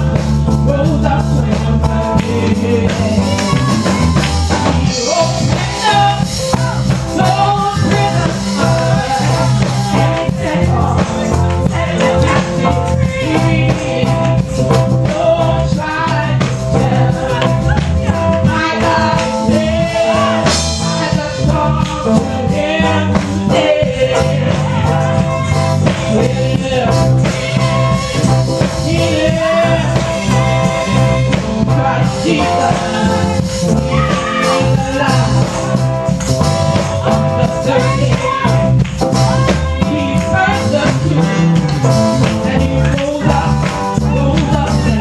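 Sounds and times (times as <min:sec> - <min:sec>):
accompaniment with steady beat: 0:00.0 - 0:45.0
woman singing through microphone: 0:02.1 - 0:35.7, 0:36.8 - 0:38.7.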